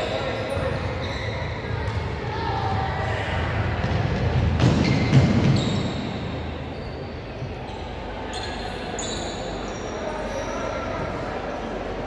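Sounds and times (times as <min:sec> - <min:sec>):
high-pitched shoe squeaks: 0:04.8 - 0:10.8.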